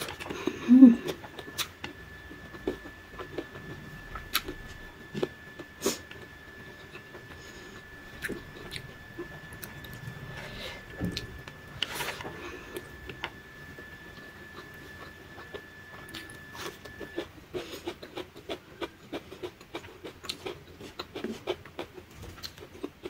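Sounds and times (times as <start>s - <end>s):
faint high whine: 0.0s - 20.0s
chewing smacks and clicks: 14.5s - 23.0s.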